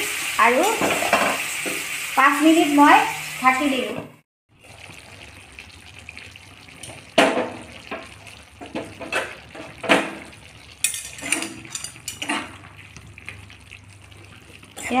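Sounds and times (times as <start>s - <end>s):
gravy bubbling in a pan: 4.5s - 15.0s.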